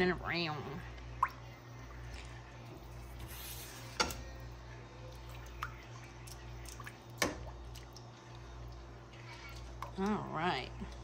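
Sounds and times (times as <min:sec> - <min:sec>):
low steady hum: 0:00.0 - 0:11.0
spoon stirring thick sauce: 0:05.1 - 0:10.0.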